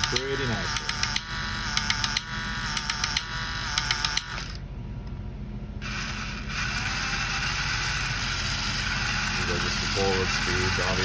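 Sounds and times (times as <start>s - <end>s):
toy hammer clicking on drum: 0.0s - 4.3s
motor whirring: 0.0s - 4.6s, 5.8s - 11.0s
small electric motor buzzing: 0.0s - 4.6s, 5.8s - 11.0s.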